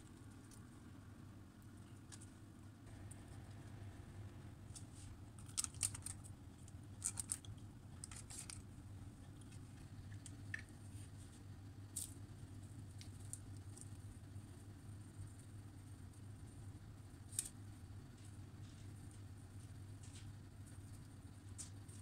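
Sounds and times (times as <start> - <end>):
low hum: 0.0 - 22.0
baking paper crinkling: 4.8 - 8.7.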